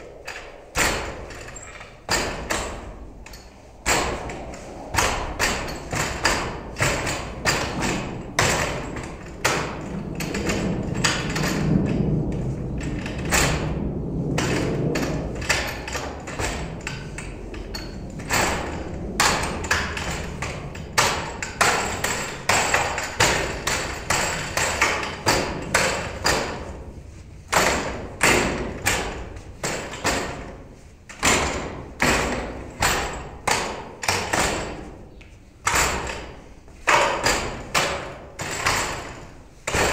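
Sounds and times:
knocks on wooden dummy: 0:36.9 - 0:39.9.

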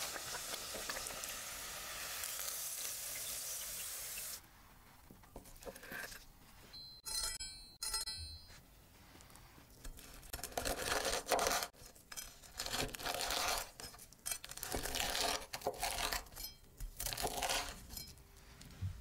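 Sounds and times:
knife crunching through crispy crust: 0:09.8 - 0:18.0.

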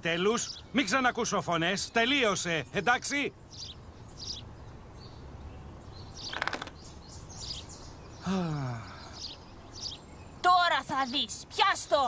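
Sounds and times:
birds chirping: 0:00.0 - 0:12.0
man sighing: 0:08.2 - 0:09.2.

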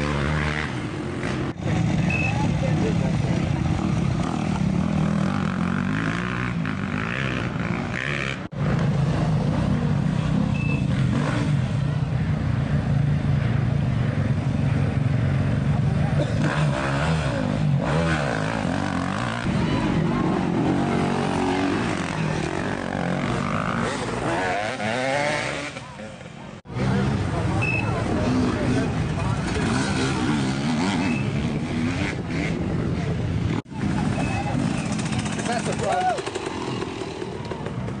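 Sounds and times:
dirt bike engines at low revs: 0:00.0 - 0:38.0
people talking: 0:01.6 - 0:05.0, 0:15.6 - 0:16.5, 0:19.0 - 0:24.8, 0:25.5 - 0:31.6, 0:32.9 - 0:36.6.

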